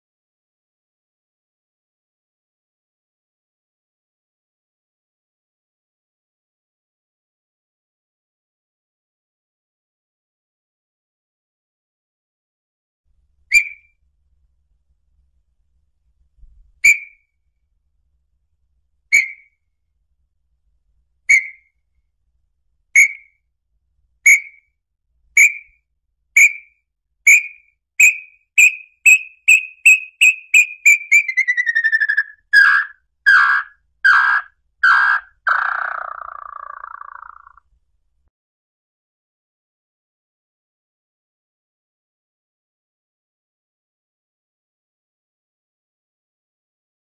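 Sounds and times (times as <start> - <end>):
bird whistled song: 13.5 - 14.0, 16.8 - 17.3, 19.1 - 19.6, 21.3 - 21.8, 23.0 - 23.4, 24.2 - 24.8, 25.4 - 25.8, 26.4 - 37.6
bird falling trill: 28.0 - 37.6.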